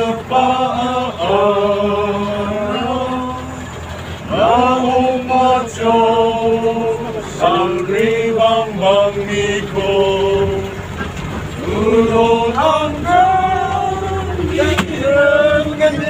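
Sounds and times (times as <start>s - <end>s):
bus engine hum: 0.0s - 16.0s
men singing together: 0.0s - 16.0s.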